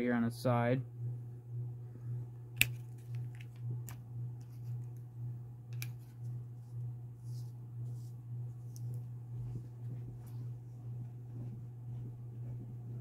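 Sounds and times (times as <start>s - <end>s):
pulsing low hum: 0.0s - 13.0s.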